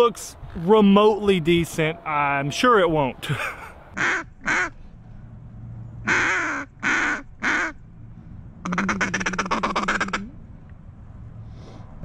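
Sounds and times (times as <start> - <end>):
duck call quacks and chatter: 4.0 - 4.8, 6.1 - 7.8, 8.6 - 10.3.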